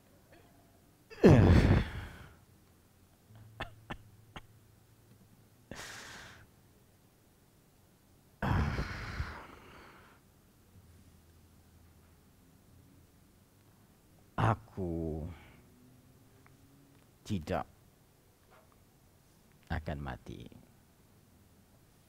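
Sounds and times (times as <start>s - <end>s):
man gasping groan: 1.5s - 2.4s, 5.7s - 6.4s, 8.4s - 10.1s
man breathing heavily in pain: 5.7s - 6.4s, 8.4s - 10.2s.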